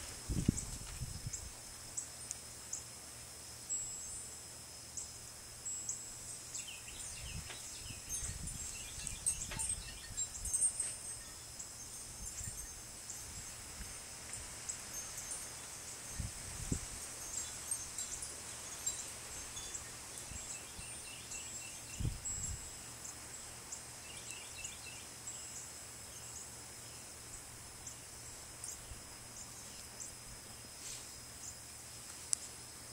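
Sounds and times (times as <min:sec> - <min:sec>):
wind buffeting microphone: 0:00.0 - 0:01.6, 0:06.9 - 0:10.5, 0:16.1 - 0:17.1, 0:22.0 - 0:22.7
high-pitched insect chirring: 0:05.0 - 0:25.6.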